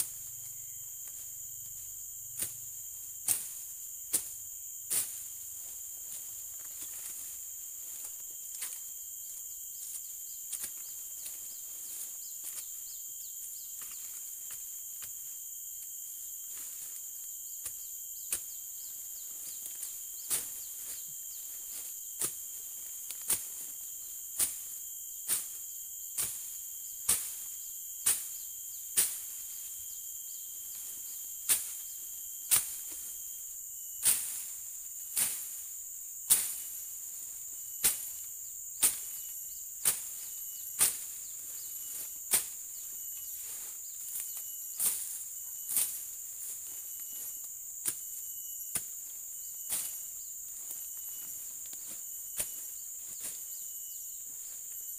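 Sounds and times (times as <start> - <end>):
high-pitched insect drone: 0.0 - 54.9
machete chopping undergrowth: 2.4 - 2.6, 3.2 - 5.2, 23.1 - 23.7, 26.2 - 29.4, 31.4 - 31.9, 32.5 - 33.0, 35.1 - 35.6, 36.3 - 36.8, 37.7 - 41.3, 41.9 - 42.8, 47.8 - 50.8, 51.7 - 53.4.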